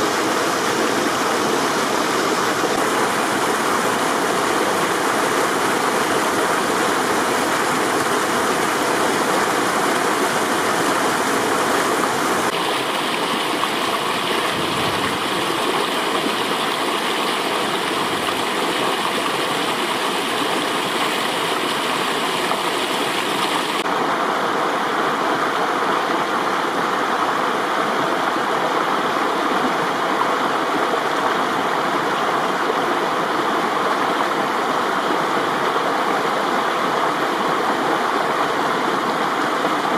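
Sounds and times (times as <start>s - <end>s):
stream rushing and splashing: 0.0s - 39.9s.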